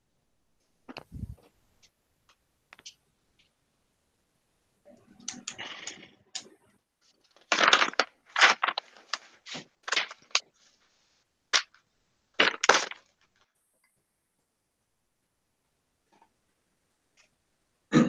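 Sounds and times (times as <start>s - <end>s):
paper rustling: 7.0s - 11.8s, 12.4s - 13.4s.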